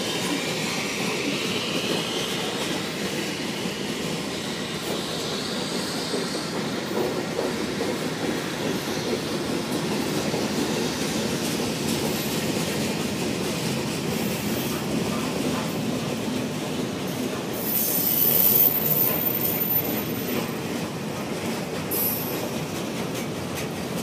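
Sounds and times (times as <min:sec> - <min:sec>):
steel wheels rolling on rails: 0:04.8 - 0:24.0.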